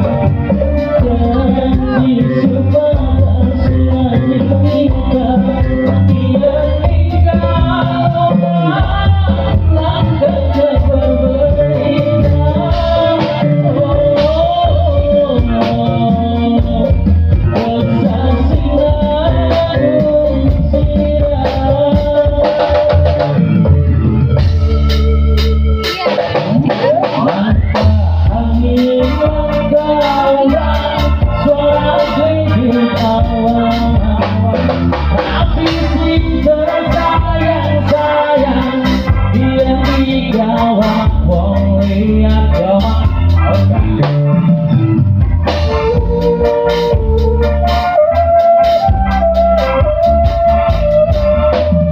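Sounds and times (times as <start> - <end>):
bass: 0.0 - 51.9
electric guitar: 0.0 - 51.9
electronic keyboard melody: 0.0 - 51.9
steady drum beat: 0.0 - 51.9.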